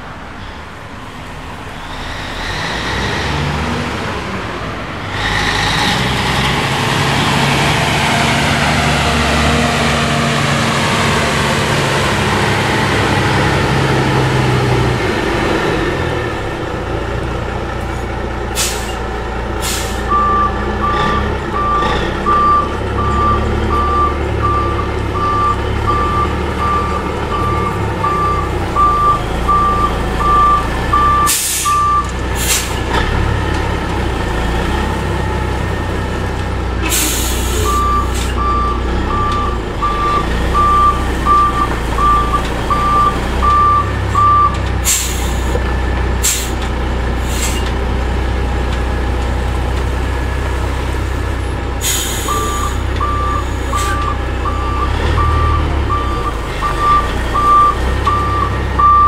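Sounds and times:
truck engine running: 4.2 - 59.0
air brakes hissing: 18.5 - 20.2, 31.2 - 31.8, 32.4 - 32.9, 36.8 - 38.4, 44.8 - 45.6, 46.2 - 46.6, 47.2 - 47.8, 51.8 - 54.0
reversing alarm beeping: 19.8 - 32.1, 37.5 - 45.1, 52.0 - 59.0.

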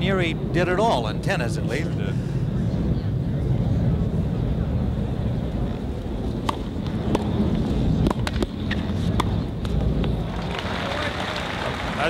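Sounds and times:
low outdoor rumble: 0.0 - 12.0
tennis ball bouncing on court: 6.4 - 7.3, 8.0 - 10.2
tennis ball struck by rackets: 6.4 - 7.3, 8.0 - 10.2.

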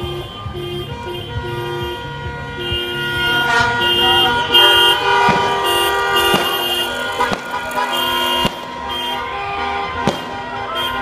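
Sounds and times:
car horns honking: 0.0 - 11.0.

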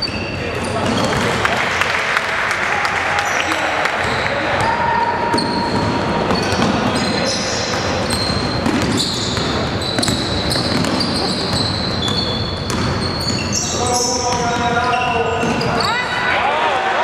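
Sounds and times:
sneakers squeaking on gym floor: 0.0 - 1.4, 3.2 - 16.3
basketball dribbling thuds: 5.3 - 15.8.

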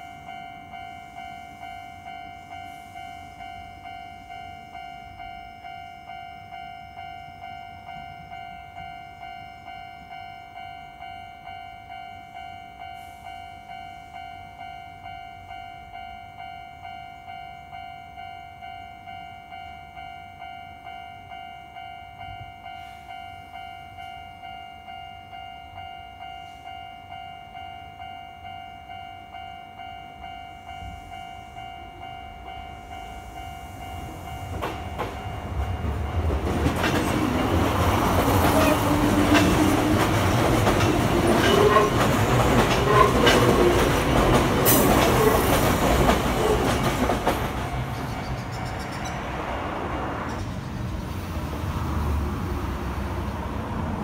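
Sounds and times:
level-crossing alarm ringing: 0.0 - 49.2
electric train passing: 0.0 - 54.0
wheels clacking over rail joints: 34.1 - 51.2.

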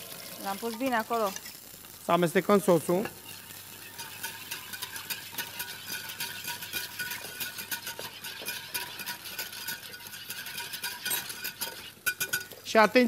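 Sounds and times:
wire whisk scraping a pan: 2.9 - 12.6.

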